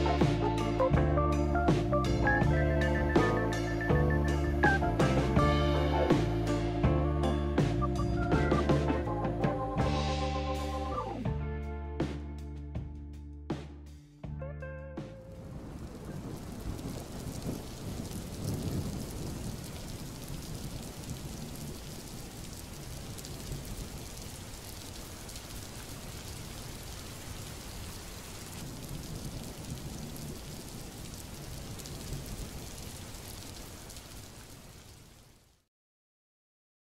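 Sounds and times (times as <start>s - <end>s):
rain-like hiss: 3.1s - 6.8s, 15.2s - 35.7s.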